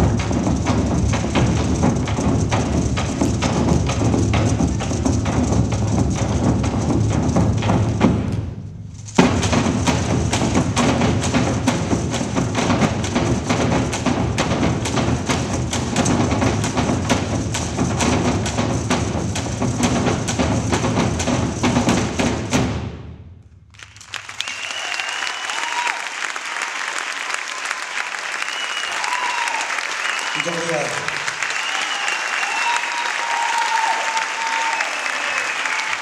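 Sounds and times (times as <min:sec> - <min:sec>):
drumming on wooden barrels: 0:00.0 - 0:23.2.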